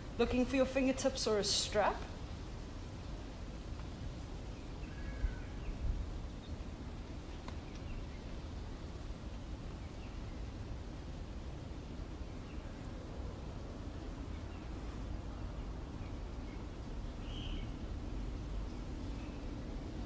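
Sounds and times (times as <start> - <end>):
faint bird chirps: 16.1 - 17.8.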